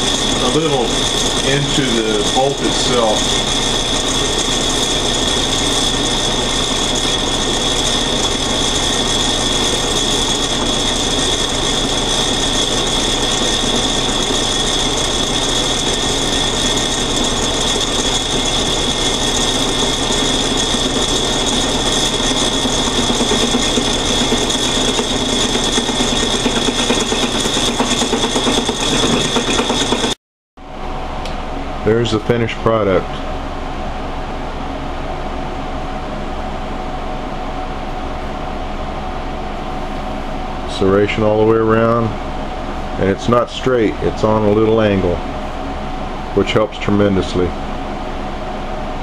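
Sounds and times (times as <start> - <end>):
lathe whining: 0.0 - 30.2.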